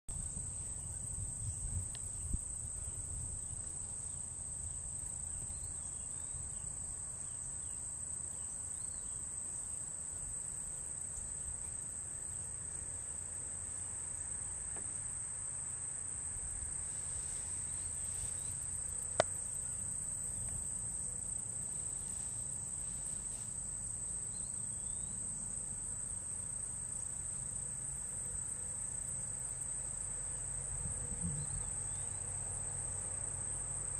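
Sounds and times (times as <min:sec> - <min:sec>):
insect chorus droning: 0:00.1 - 0:33.9
low rumble: 0:30.8 - 0:31.8.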